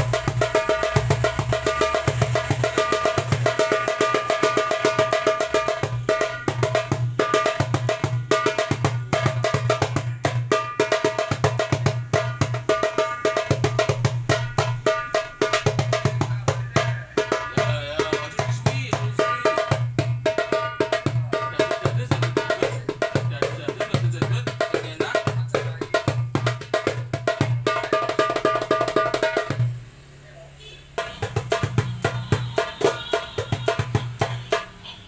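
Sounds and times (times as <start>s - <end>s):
hand drum rhythm: 0.0s - 29.8s, 31.0s - 34.8s.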